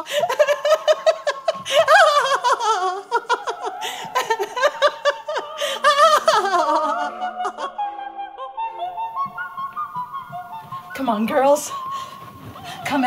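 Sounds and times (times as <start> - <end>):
woman laughing heartily: 0.0 - 9.3.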